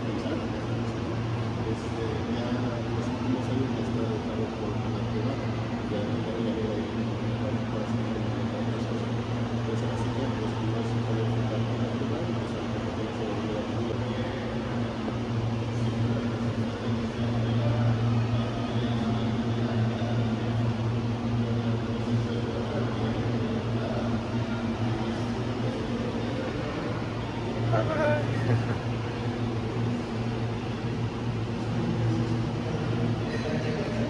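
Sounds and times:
low machine hum: 0:00.0 - 0:34.0.

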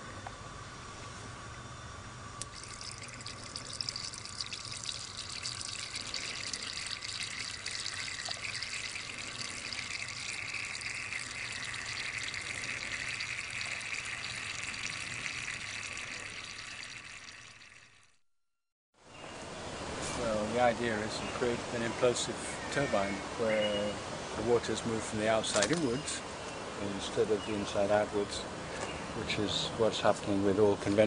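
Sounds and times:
water trickling hiss: 0:02.4 - 0:18.0.

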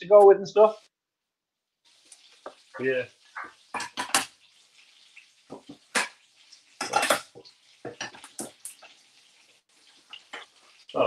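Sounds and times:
metal pans clattering: 0:03.3 - 0:04.4, 0:05.5 - 0:06.2, 0:06.8 - 0:09.0.

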